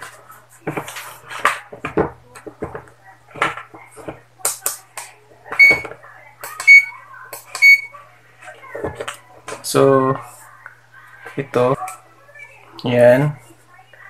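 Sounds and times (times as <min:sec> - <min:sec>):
clamp meter beeps: 0:05.6 - 0:05.9, 0:06.6 - 0:06.9, 0:07.6 - 0:07.9.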